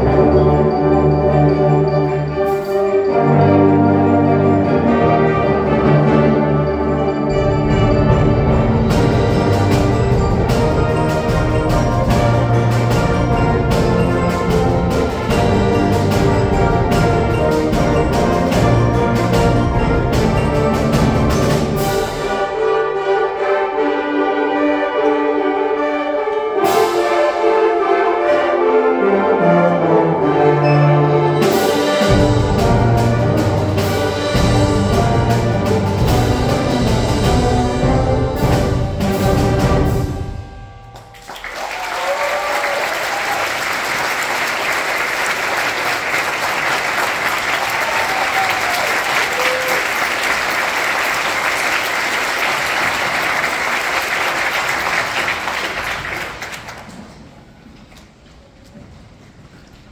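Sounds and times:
percussion strikes: 0.0 - 23.2, 29.6 - 57.2
concert band playing: 0.0 - 23.5, 26.6 - 55.2
audience applauding: 41.0 - 57.2.

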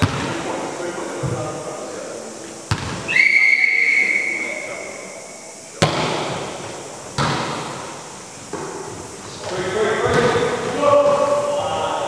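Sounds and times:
volleyball hits echoing: 0.0 - 0.5, 2.7 - 3.1, 5.8 - 7.9, 10.0 - 11.6
referee's whistle blast: 3.1 - 5.4.

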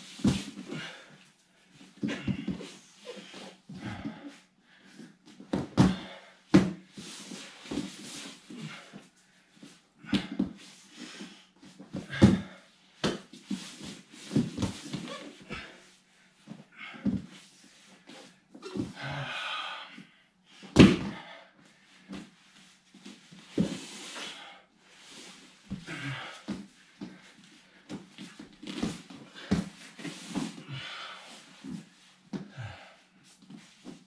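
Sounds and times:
body thudding on foam mats: 2.0 - 2.6, 5.5 - 6.8, 12.0 - 15.2, 20.7 - 21.3.

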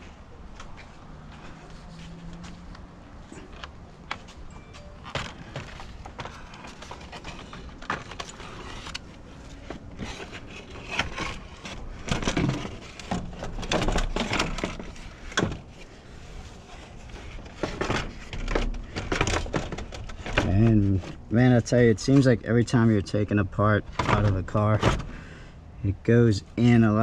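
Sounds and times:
plastic parts clunking and scraping: 3.2 - 21.3, 23.8 - 25.4.

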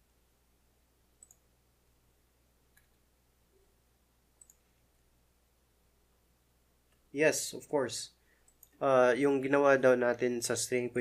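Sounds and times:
low steady hum: 0.0 - 11.0
computer mouse clicks: 1.2 - 1.5, 2.7 - 3.0, 4.4 - 4.7, 8.4 - 8.8.

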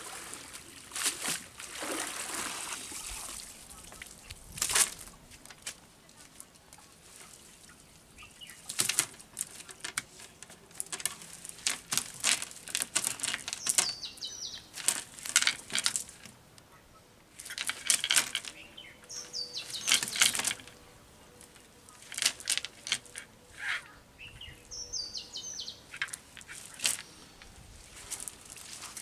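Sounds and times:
net rustling and rattling: 4.4 - 5.8, 8.5 - 16.4, 17.3 - 20.8, 21.4 - 23.8, 25.8 - 29.0.

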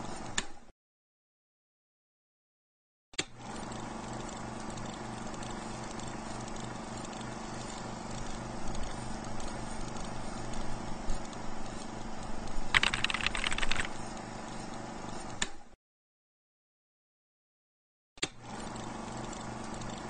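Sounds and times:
film projector whirring: 3.2 - 15.6, 18.2 - 20.0.

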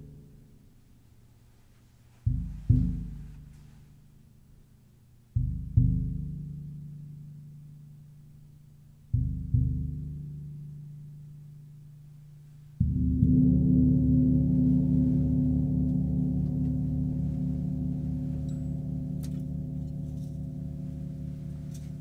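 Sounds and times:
gong struck with soft mallet: 12.8 - 22.0.

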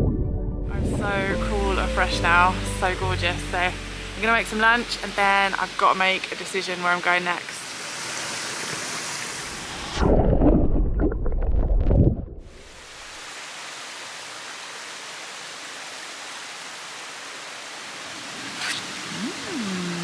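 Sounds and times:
wind buffeting microphone: 0.0 - 1.4
mountain stream rushing: 12.6 - 20.0.

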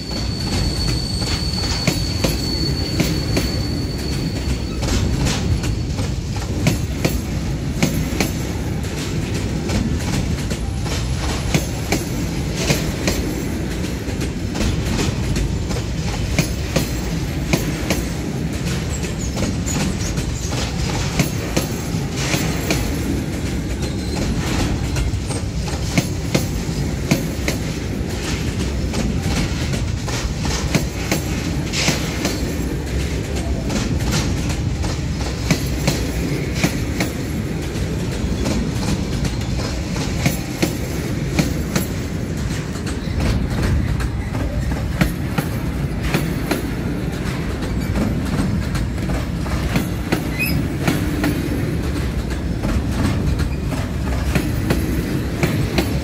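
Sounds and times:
high wheel squeal: 0.0 - 6.3, 50.2 - 50.8
train wheels rumbling on rail: 0.0 - 56.0
sharp rail clacks: 0.1 - 56.0.

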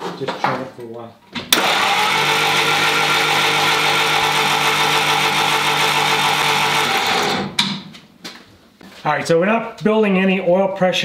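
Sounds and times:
starter motor cranking engine: 1.5 - 7.6.

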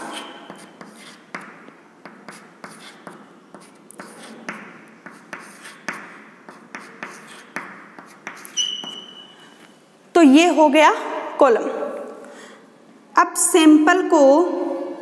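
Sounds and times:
chalk squeak: 0.0 - 1.2, 2.3 - 9.6
chalk tapping on chalkboard: 0.0 - 9.3.

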